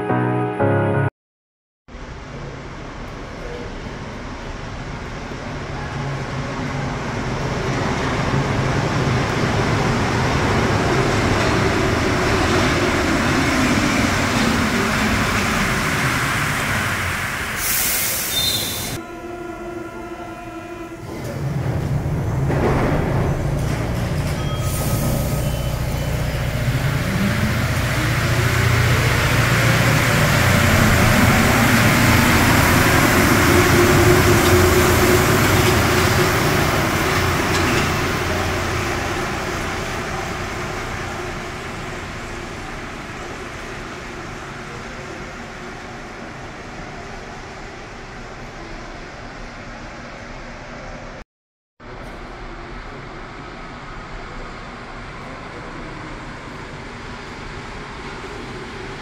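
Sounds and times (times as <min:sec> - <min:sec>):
metro train braking: 0:02.1 - 0:49.9
short air hiss: 0:17.6 - 0:19.0.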